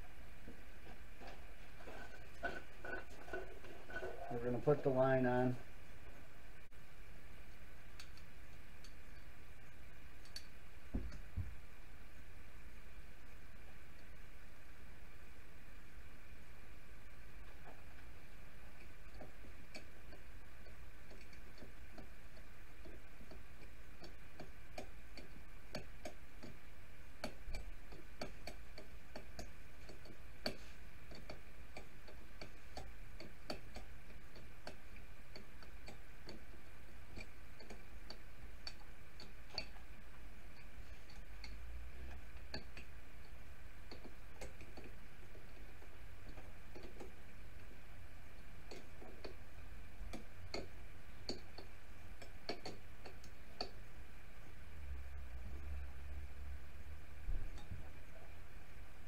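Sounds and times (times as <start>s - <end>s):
steady background hum: 0.0s - 59.0s
small clicks and taps of fittings: 50.1s - 53.8s.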